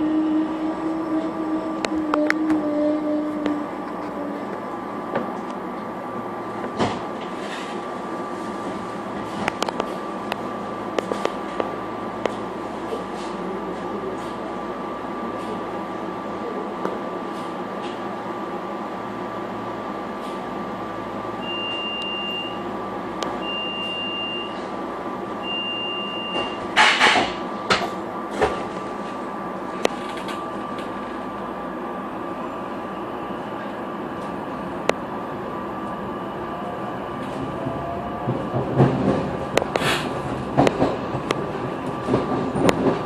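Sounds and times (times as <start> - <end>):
train rumble and clatter: 0.0 - 21.8, 26.3 - 43.0
high warning beeps: 21.4 - 22.6, 23.4 - 24.6, 25.4 - 26.6
train doors hissing shut: 26.3 - 28.7, 39.6 - 41.0.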